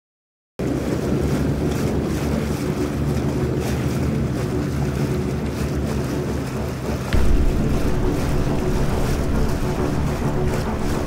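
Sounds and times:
outboard motor running: 0.6s - 11.0s
wind buffeting microphone: 0.6s - 11.0s.

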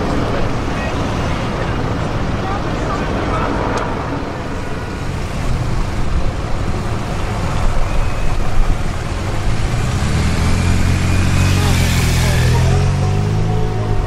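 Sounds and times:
street traffic noise: 0.0s - 14.0s
motorcycle engine running: 5.4s - 14.0s.

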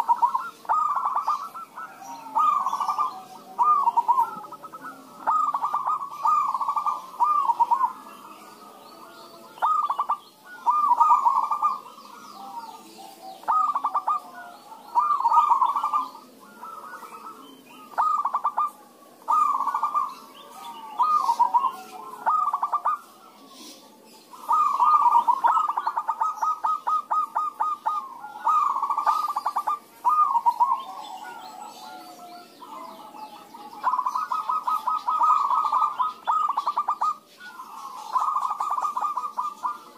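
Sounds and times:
doves cooing: 0.0s - 39.9s.

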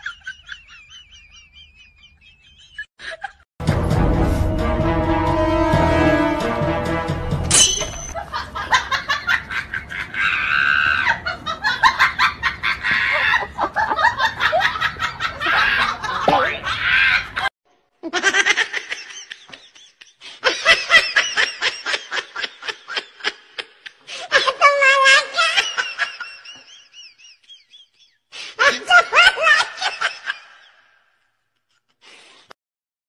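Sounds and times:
high-pitched laughter: 8.2s - 30.9s.

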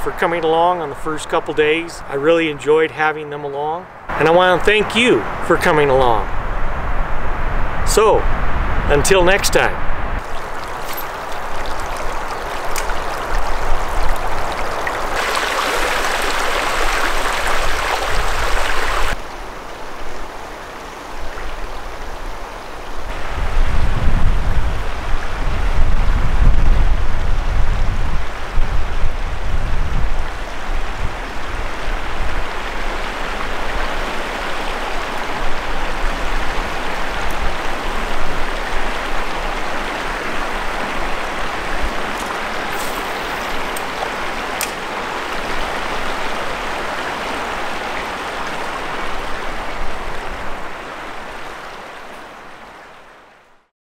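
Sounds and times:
wind rumbling on microphone: 6.1s - 19.2s, 21.0s - 34.3s
creek water rushing: 9.6s - 25.6s, 28.2s - 53.5s.

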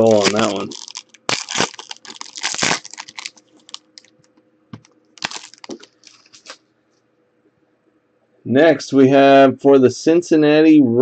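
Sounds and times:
foil wrapper tearing and crinkling: 0.0s - 4.1s, 5.2s - 6.6s.

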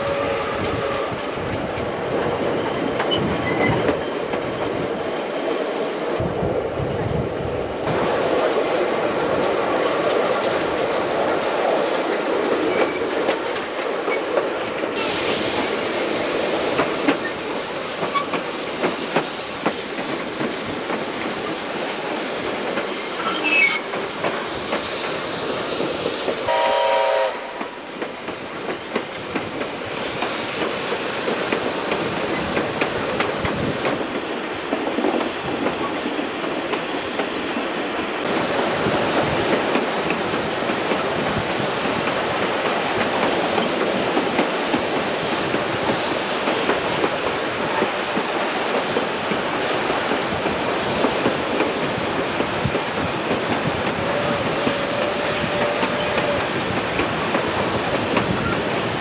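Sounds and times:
steam whistle blast: 0.0s - 1.2s, 26.5s - 27.7s
train rumble: 0.0s - 59.0s.

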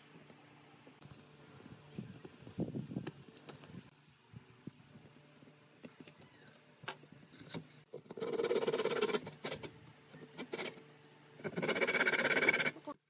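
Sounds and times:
hand saw cutting wood: 8.0s - 9.7s, 10.4s - 10.8s, 11.4s - 12.8s.

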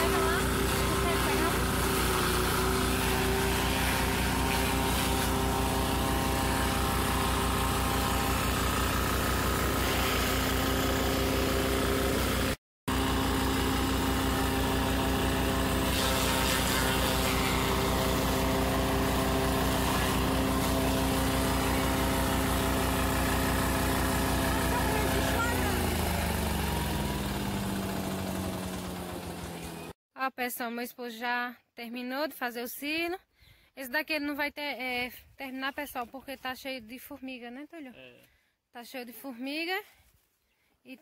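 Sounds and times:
chopper shredding corn stalks: 0.0s - 30.0s
small engine running: 0.0s - 30.0s.

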